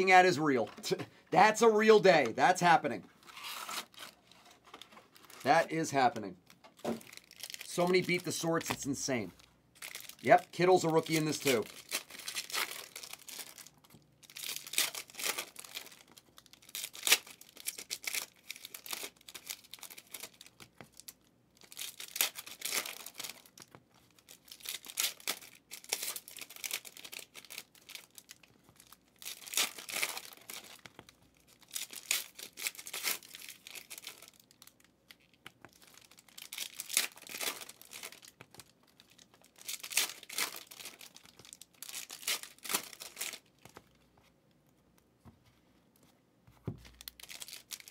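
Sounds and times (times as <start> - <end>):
paper rustling and crinkling: 3.2 - 5.5.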